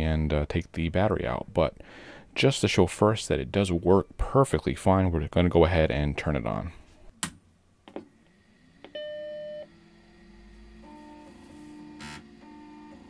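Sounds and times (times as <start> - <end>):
computer hum: 8.1 - 13.0.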